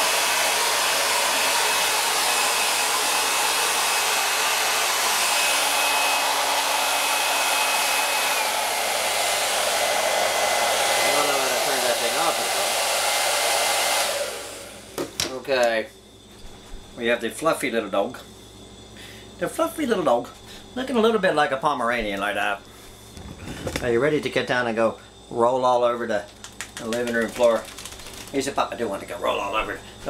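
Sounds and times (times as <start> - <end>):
hair dryer blowing: 0.0 - 15.2, 26.5 - 29.8.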